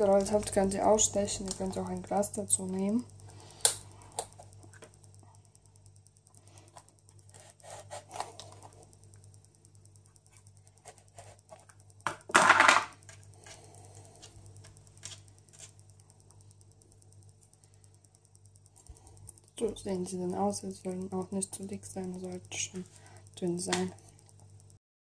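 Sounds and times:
dough cutter scraping and clicking: 0:07.2 - 0:08.8, 0:13.0 - 0:15.9.

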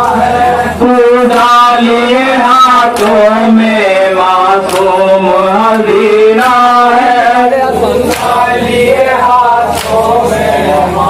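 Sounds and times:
men chanting in unison: 0:00.0 - 0:11.0
chest-beating slaps: 0:09.7 - 0:10.0.

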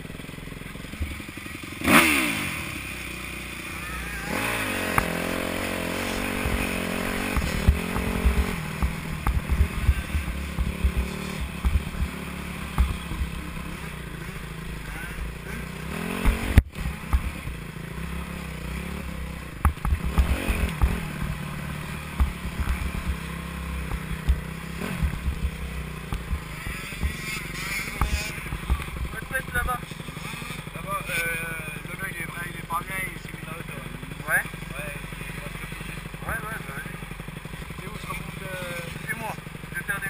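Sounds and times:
dirt bike engine revving: 0:00.0 - 0:40.0
low thumps and knocks: 0:06.3 - 0:13.4, 0:19.6 - 0:21.4, 0:22.0 - 0:23.2, 0:23.8 - 0:27.2.

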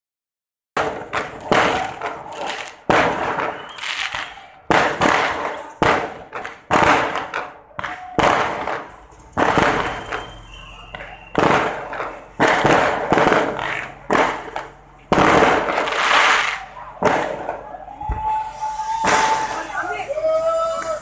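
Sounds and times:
fireworks bursting with echo: 0:00.8 - 0:21.0.

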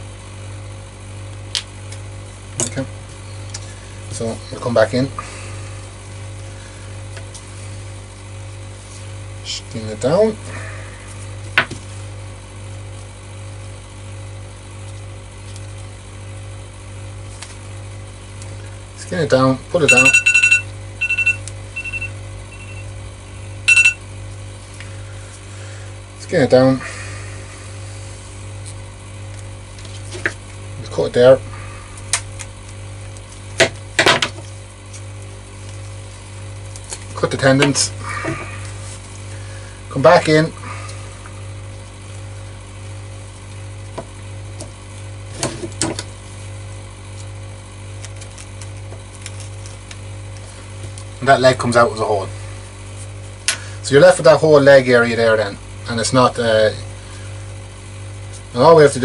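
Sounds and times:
steady low hum: 0:00.0 - 0:59.0
electronic alarm beeping: 0:19.8 - 0:22.9, 0:23.6 - 0:24.0
low hum: 0:19.8 - 0:26.1.

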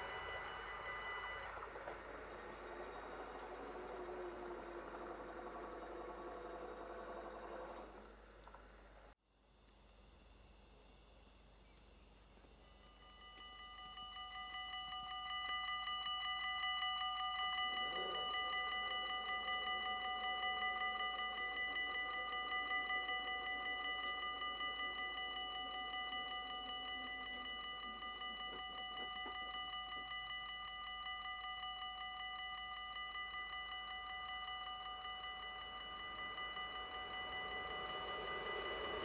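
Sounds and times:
level-crossing warning bell ringing: 0:00.0 - 0:08.4, 0:12.6 - 0:39.0
motor hum of lowering gate arms: 0:00.0 - 0:09.1, 0:34.9 - 0:39.0.

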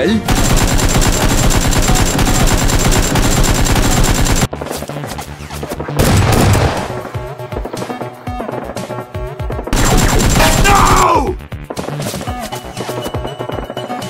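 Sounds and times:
rapid automatic gunfire: 0:00.3 - 0:04.7, 0:09.7 - 0:10.8.

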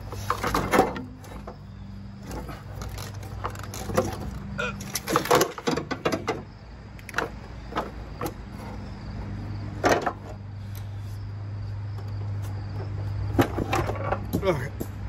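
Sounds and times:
metal knocks and clunks: 0:00.3 - 0:08.4, 0:09.8 - 0:10.4.

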